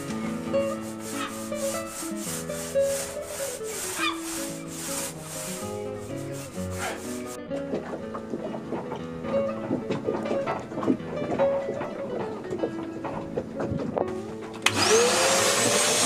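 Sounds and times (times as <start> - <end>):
paint roller swishing: 0.0 - 7.4, 14.7 - 16.0
background music: 0.0 - 16.0.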